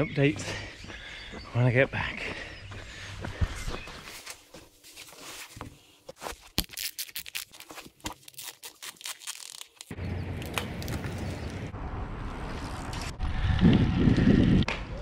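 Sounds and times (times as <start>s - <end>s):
wind: 0.0s - 15.0s
shoes scuffing on doormat: 3.2s - 6.6s
road noise: 9.9s - 14.8s.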